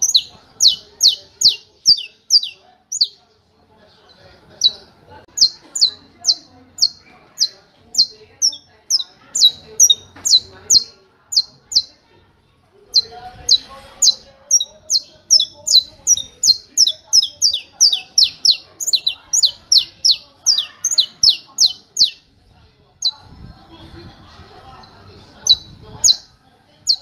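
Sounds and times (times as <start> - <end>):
finch singing sharp high notes: 0.0 - 3.2, 12.9 - 22.2.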